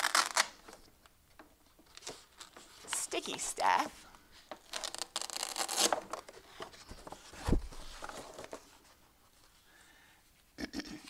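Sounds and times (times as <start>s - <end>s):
paper rustling and peeling: 4.6s - 9.6s.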